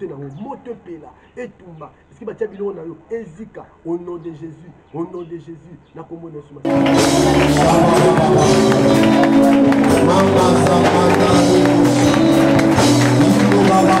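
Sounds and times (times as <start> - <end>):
loud music with percussive beat: 6.7 - 14.0.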